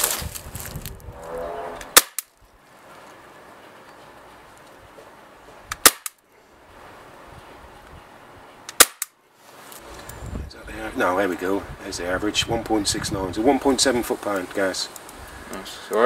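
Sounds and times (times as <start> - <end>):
pellet pistol shots: 1.9 - 2.3, 5.7 - 6.2, 8.7 - 9.1.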